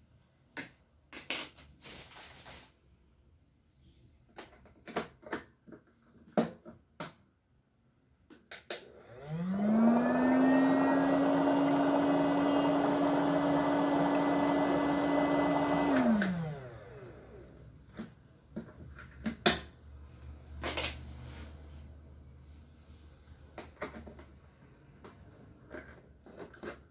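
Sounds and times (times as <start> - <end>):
footbath motor humming: 9.0 - 17.4.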